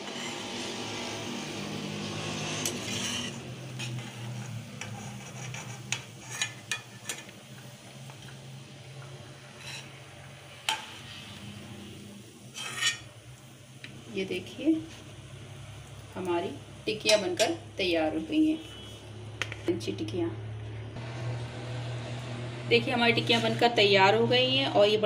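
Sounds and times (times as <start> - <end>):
hot oil sizzling: 0.0 - 19.6.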